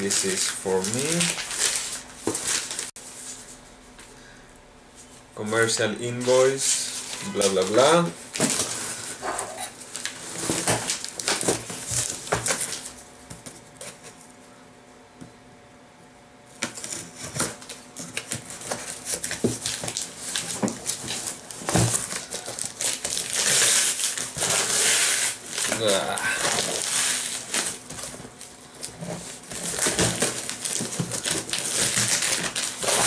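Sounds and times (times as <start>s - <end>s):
plastic crinkling: 0.0s - 2.9s, 9.8s - 13.0s, 16.7s - 33.0s
tool scraping box tape: 22.8s - 25.8s.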